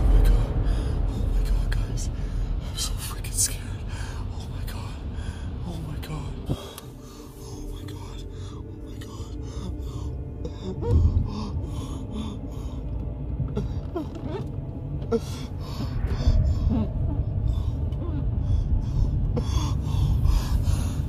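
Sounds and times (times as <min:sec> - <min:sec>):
car cabin rumble: 0:00.0 - 0:21.0
person gasping breaths: 0:05.0 - 0:05.6, 0:15.2 - 0:21.0.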